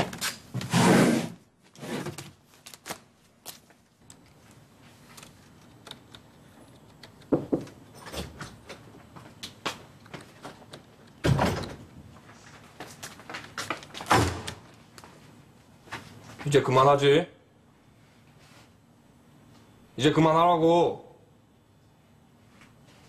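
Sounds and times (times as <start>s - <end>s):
door knocking: 7.3s - 7.7s.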